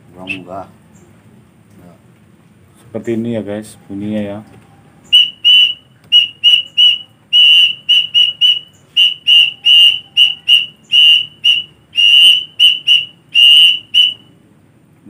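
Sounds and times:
pigeon whistle high notes: 0.2 - 0.5, 5.1 - 14.3.

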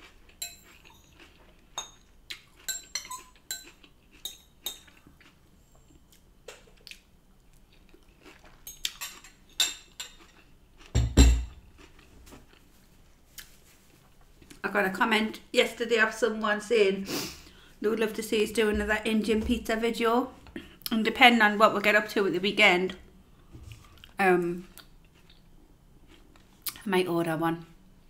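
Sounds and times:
quiet chewing: 0.0 - 9.4, 11.7 - 14.6, 23.3 - 26.8
metal fork clinking against bowl: 0.4 - 1.2, 1.8 - 5.0.

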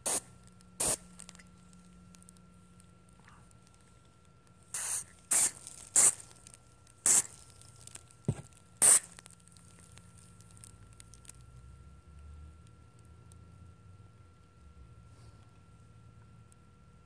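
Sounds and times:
aerosol spray hissing: 0.8 - 1.0, 4.7 - 6.2, 7.1 - 7.4, 8.8 - 9.1.

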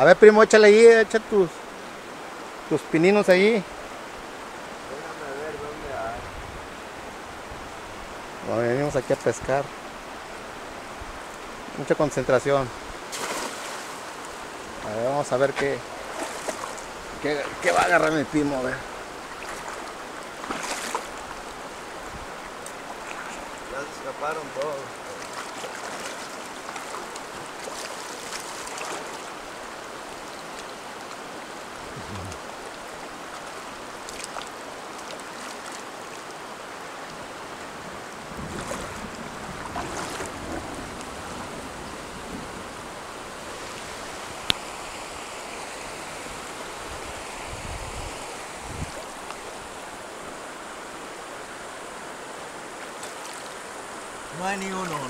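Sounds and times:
shallow river running: 0.0 - 55.0
sloshing of person wading: 13.1 - 14.0, 15.9 - 16.8, 19.4 - 21.2, 25.2 - 29.3, 38.4 - 40.6.

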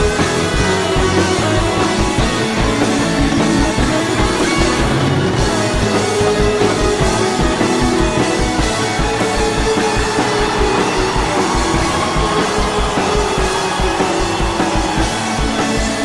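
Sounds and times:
music with fast beat: 0.0 - 16.0.

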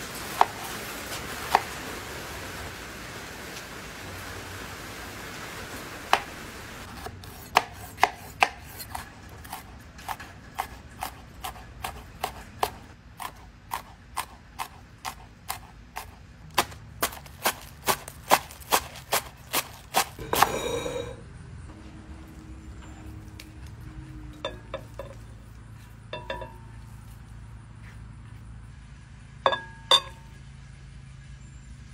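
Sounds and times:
knife scraping board: 6.9 - 16.2, 17.0 - 21.2
knife chopping on cutting board: 7.0 - 20.8.

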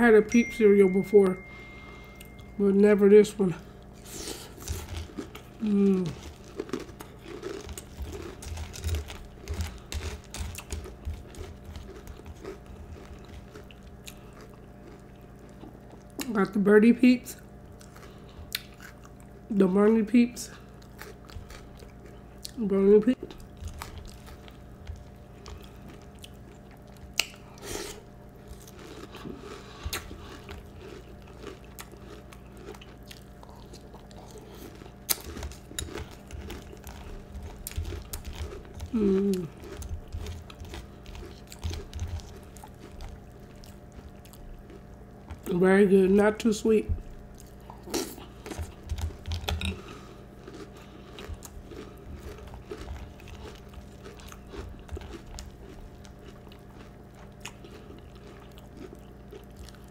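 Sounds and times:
chewing crunchy cereal: 3.7 - 16.5, 17.2 - 45.7, 46.4 - 59.9.

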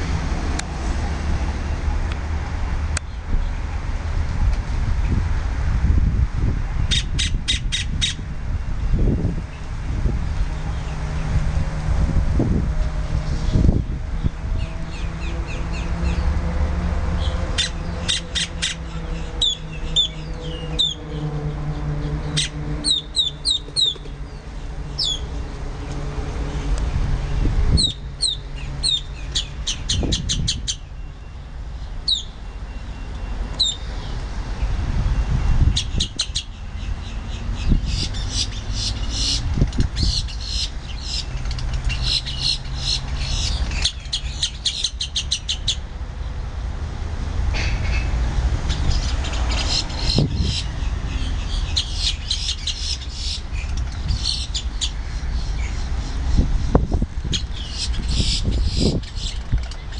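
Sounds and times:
grackles calling: 17.2 - 21.2, 35.8 - 45.8, 48.7 - 56.3, 57.3 - 59.9.

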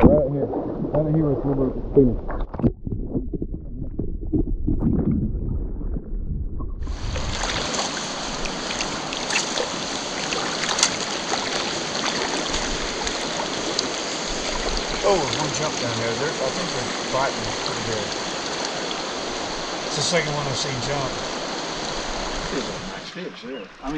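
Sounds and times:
river water flowing: 6.9 - 23.9.

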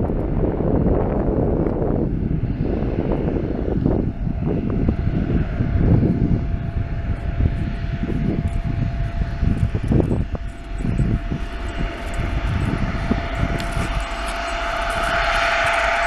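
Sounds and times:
jet engine rumble: 0.0 - 16.0
jet engine whine: 0.0 - 16.0.

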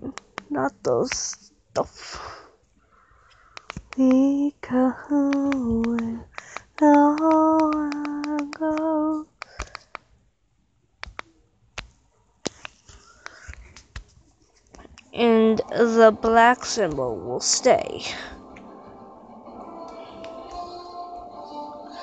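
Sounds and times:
sharp clicks: 0.0 - 0.5, 3.3 - 4.3, 5.2 - 10.1, 11.0 - 14.1
person singing long notes: 4.0 - 9.3, 15.2 - 22.0.

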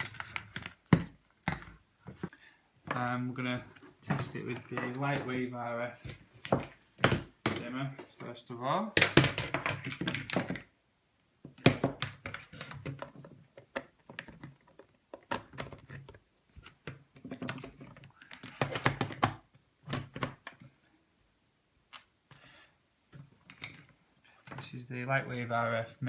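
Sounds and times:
plastic clicks and knocks: 9.0 - 10.7.

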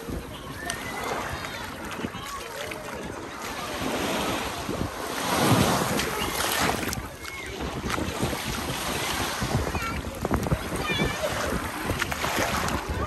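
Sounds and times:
small waves breaking on shore: 0.0 - 13.0
wind buffeting microphone: 0.0 - 13.0.

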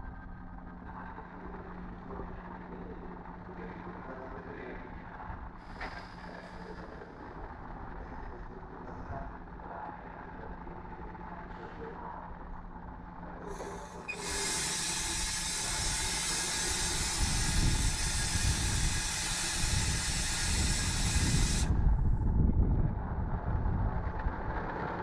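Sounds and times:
low diesel rumble: 0.0 - 25.0
air brakes hissing: 5.6 - 6.4, 13.5 - 21.8.

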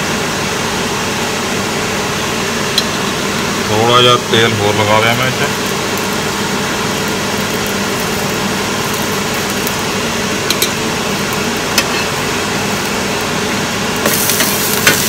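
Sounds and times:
food sizzling on a griddle: 4.6 - 15.0.

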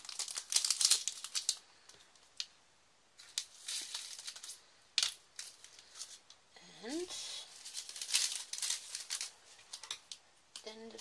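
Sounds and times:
plastic bag rustling: 0.0 - 1.6, 3.2 - 6.2, 7.1 - 10.2.

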